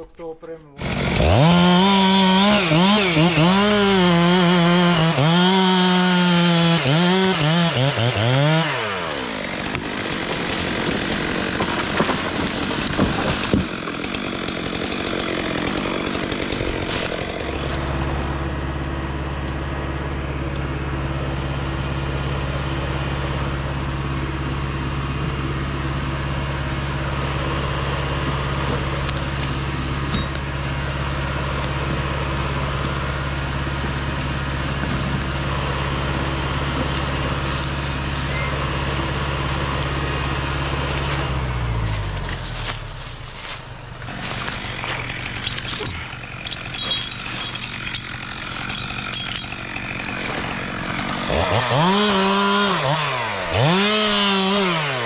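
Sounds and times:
chainsaw revving: 0.8 - 19.9, 22.7 - 55.0
low diesel engine drone: 0.8 - 55.0.

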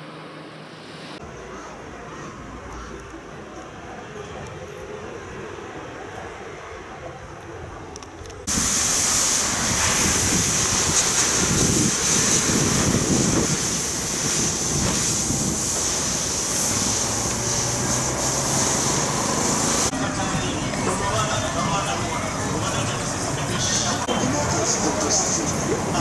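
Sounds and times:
low wind buffeting: 1.2 - 26.0
wind on microphone: 6.4 - 19.9.

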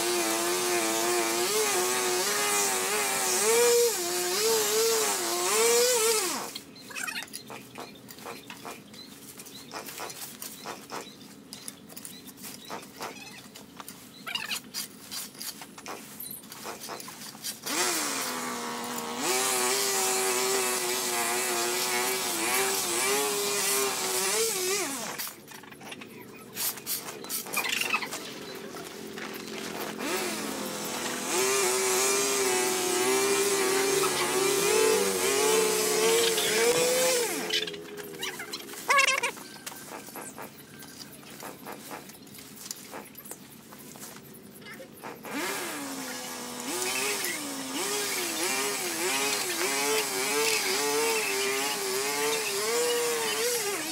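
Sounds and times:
power tool small engine running: 0.0 - 6.7, 17.6 - 25.3, 29.0 - 38.2, 45.2 - 53.9.

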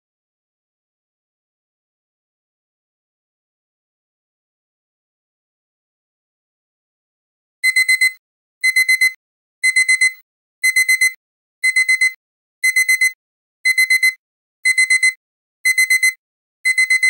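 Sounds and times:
alarm clock beeping: 7.6 - 17.0.

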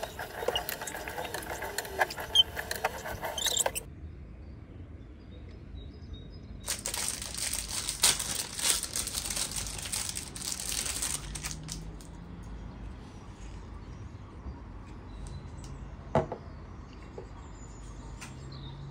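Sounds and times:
plastic packaging crinkling: 6.6 - 12.1.

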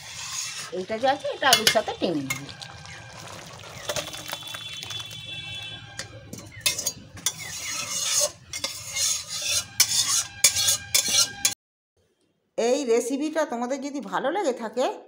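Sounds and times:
spoon scraping metal pot: 0.0 - 11.6.

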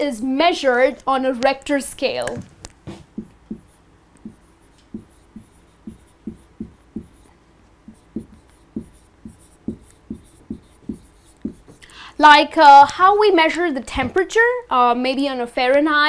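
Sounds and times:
marker knocking on whiteboard: 2.4 - 11.8
marker squeaking on whiteboard: 3.0 - 7.3, 7.9 - 11.8.

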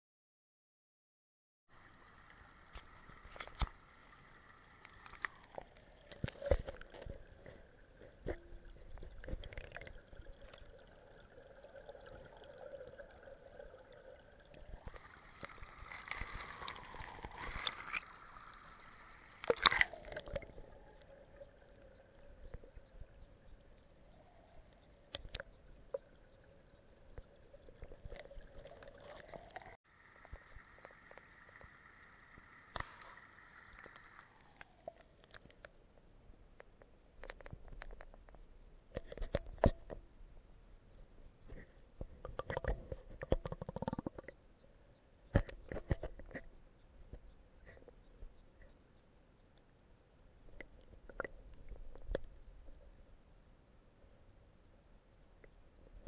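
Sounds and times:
faint steady tone: 1.7 - 56.0
underwater knocks and clicks: 4.8 - 31.8, 36.6 - 40.5, 41.3 - 44.4, 45.3 - 48.8, 50.5 - 52.9
muffled underwater gurgling: 41.5 - 44.4.

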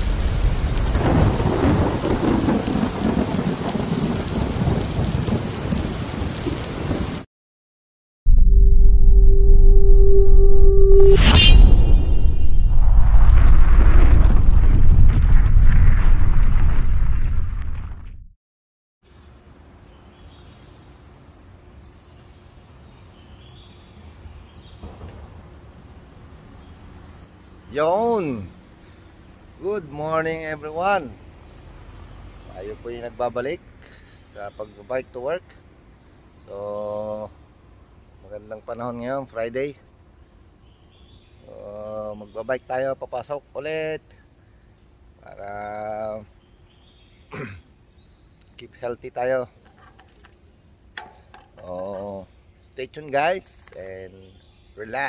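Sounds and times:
rolling thunder rumble: 0.0 - 7.2, 12.2 - 17.8
heavy rain: 0.0 - 7.3
distant traffic hum: 19.1 - 41.2.

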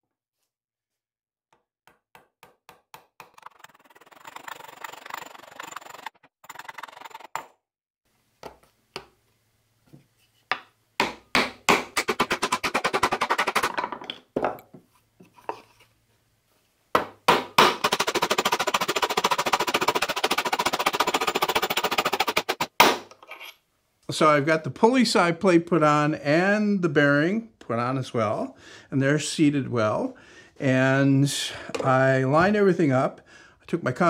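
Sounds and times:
wooden mallet knocking on plywood: 17.0 - 17.8.

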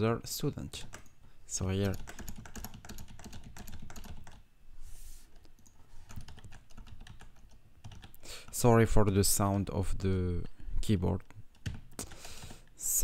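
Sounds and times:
keyboard typing: 0.8 - 4.4, 5.4 - 8.6, 11.5 - 12.7.

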